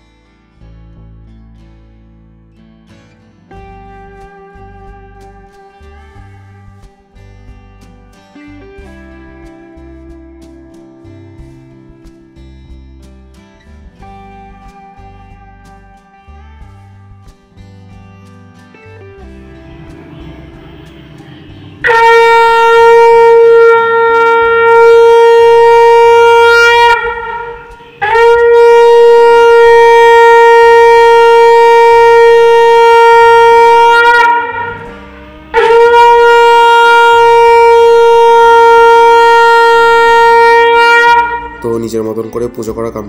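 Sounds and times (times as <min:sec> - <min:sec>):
conch shell blasts: 0:19.2 - 0:42.1.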